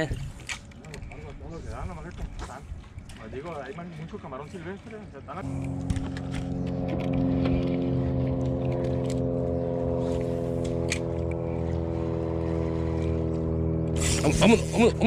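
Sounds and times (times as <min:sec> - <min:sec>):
boat motor humming: 0:05.4 - 0:15.0.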